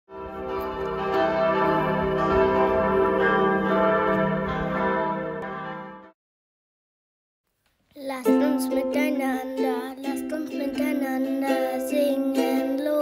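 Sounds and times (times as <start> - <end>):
church bells ringing: 0.1 - 6.2.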